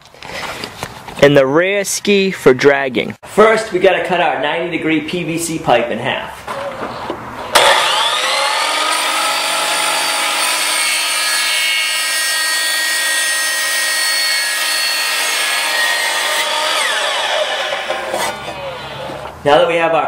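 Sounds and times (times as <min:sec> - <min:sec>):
electric miter saw whining: 0:07.5 - 0:19.3
saw cutting plastic pipe: 0:07.5 - 0:19.3.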